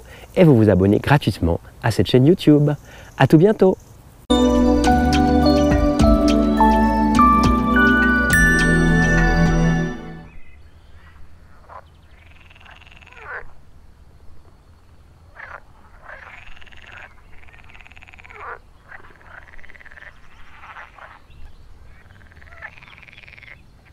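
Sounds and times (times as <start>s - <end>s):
frogs croaking: 2.5s - 4.2s, 10.3s - 23.9s.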